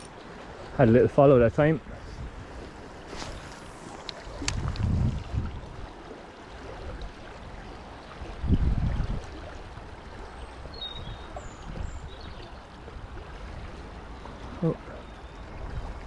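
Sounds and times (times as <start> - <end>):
river water flowing: 0.0 - 16.0
low rumble on microphone: 4.4 - 6.0.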